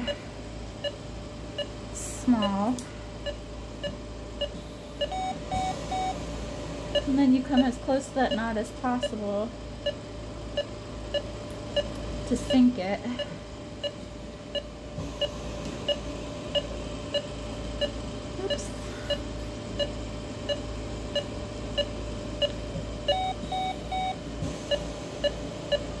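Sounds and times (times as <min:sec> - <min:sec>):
patient monitor beeping: 0:00.0 - 0:01.8, 0:02.4 - 0:06.2, 0:06.9 - 0:26.0.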